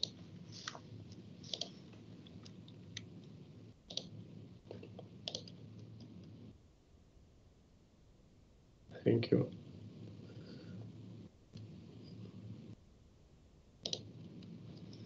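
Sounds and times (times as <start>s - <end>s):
low steady hum: 0.0s - 15.0s
faint computer clicks: 1.5s - 3.1s, 3.9s - 6.4s, 13.8s - 15.0s.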